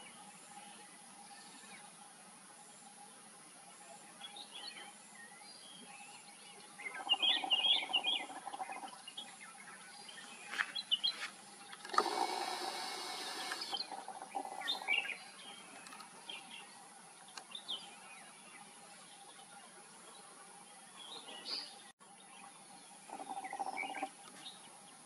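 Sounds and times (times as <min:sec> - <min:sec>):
bird chirping: 0:02.6 - 0:25.0
steady buzzing: 0:11.8 - 0:14.9.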